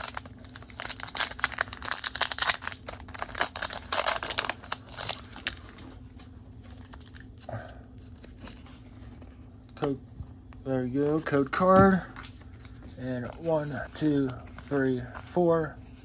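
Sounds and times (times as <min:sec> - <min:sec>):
foil wrapper crinkling and tearing: 0:00.0 - 0:05.8, 0:06.7 - 0:08.7.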